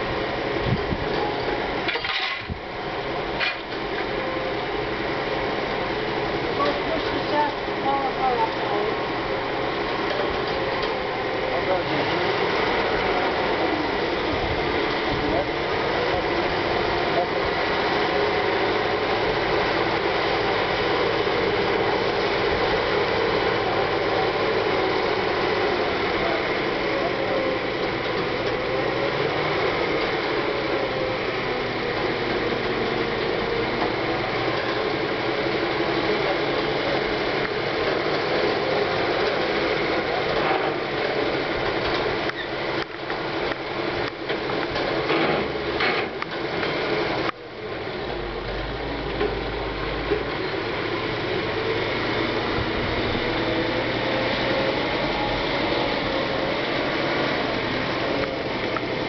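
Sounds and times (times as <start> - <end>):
railway machine engine running: 0.0 - 59.0
clatter of gears: 1.1 - 2.6, 3.4 - 3.9, 38.9 - 47.4.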